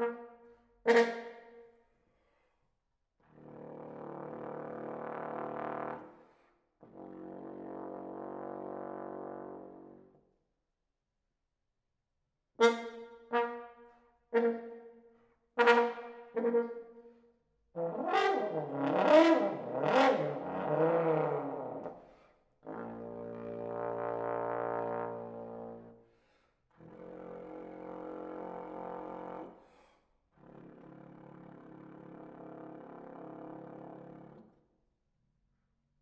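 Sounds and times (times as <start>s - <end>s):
solo trombone: 3.4s - 10.1s, 15.6s - 16.8s, 17.8s - 21.9s, 22.6s - 26.0s, 26.8s - 29.6s, 30.4s - 34.4s.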